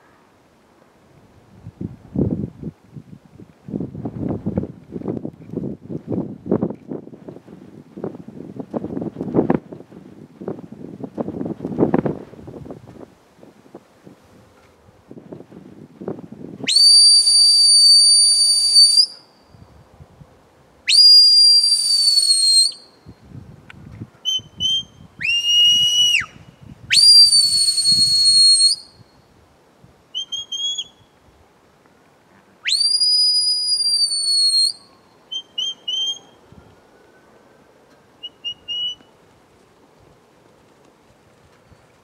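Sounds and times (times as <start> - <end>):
high-pitched whistle blasts: 16.7 - 19.7, 20.9 - 23.2, 24.2 - 29.2, 30.2 - 31.2, 32.6 - 36.7, 38.2 - 39.1.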